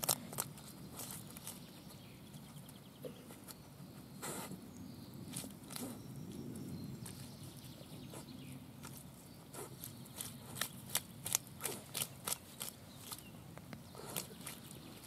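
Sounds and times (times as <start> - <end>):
dog rooting in wet mud: 0.0 - 15.0
sharp wet clicks and snaps: 9.8 - 14.8.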